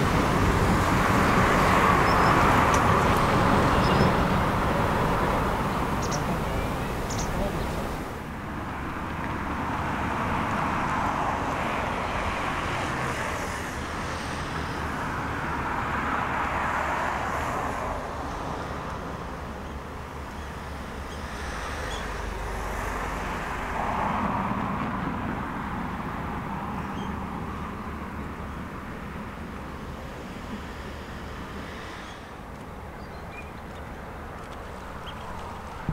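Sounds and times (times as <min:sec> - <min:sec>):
low traffic rumble: 0:00.0 - 0:35.9
vehicles passing: 0:00.0 - 0:35.9.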